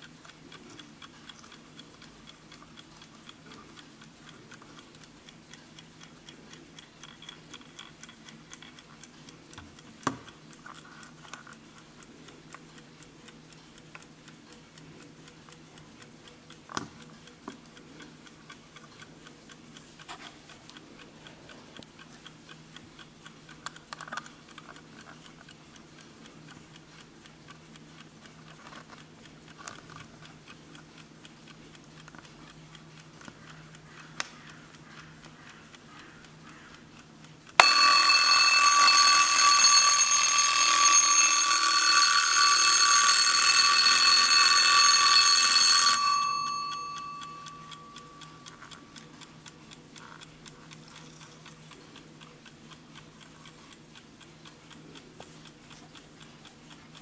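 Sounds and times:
alarm clock ticking: 0.0s - 57.0s
alarm bell ringing: 37.6s - 48.4s.

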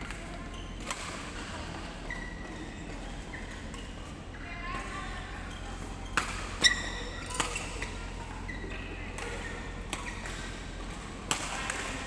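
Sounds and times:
rackets striking shuttlecocks: 0.0s - 1.4s, 6.1s - 8.2s, 9.0s - 12.0s
sneakers squeaking on court: 0.1s - 12.0s.

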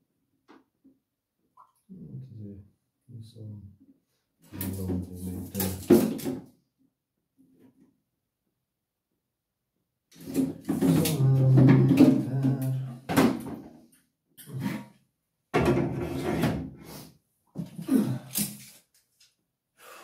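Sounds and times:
objects scraping and rubbing: 10.2s - 13.1s, 14.4s - 15.0s, 15.7s - 17.1s.

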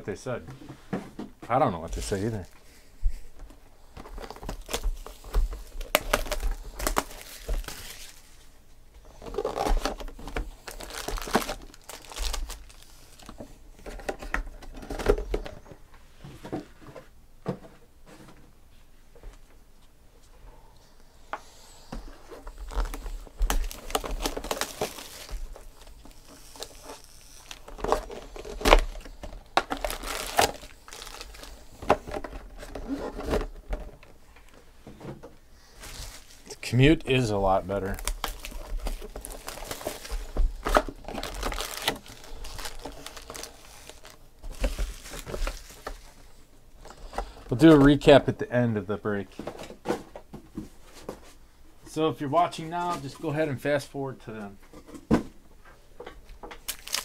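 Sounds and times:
foil packs crinkling: 3.8s - 15.6s, 22.4s - 34.1s, 35.7s - 48.2s, 56.6s - 57.0s
plastic wrap tearing and crinkling: 4.0s - 8.5s, 9.1s - 13.4s, 22.4s - 33.6s, 35.8s - 48.0s, 56.6s - 57.0s.

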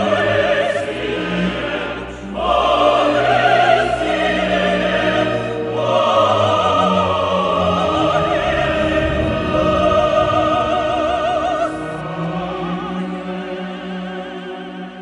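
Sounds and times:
orchestra playing: 0.0s - 15.0s
woman singing with vibrato: 5.9s - 13.7s.

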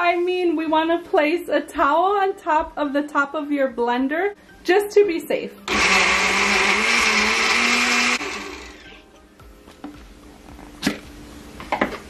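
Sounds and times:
blender motor running: 5.7s - 9.0s.

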